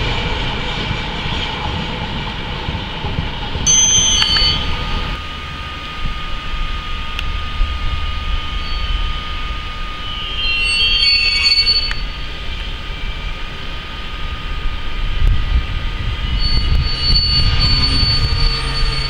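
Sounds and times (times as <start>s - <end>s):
locomotive low rumble: 0.0s - 19.0s
locomotive steady whine: 0.0s - 19.0s
wheel squeals: 3.7s - 5.0s, 10.0s - 12.7s, 16.2s - 19.0s.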